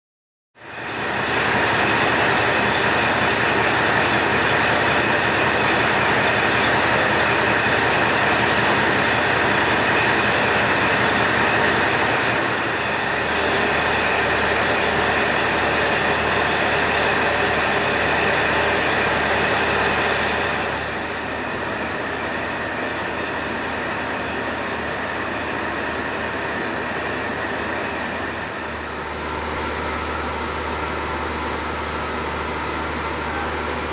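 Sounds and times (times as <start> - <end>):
diesel engine idling: 28.6 - 33.9.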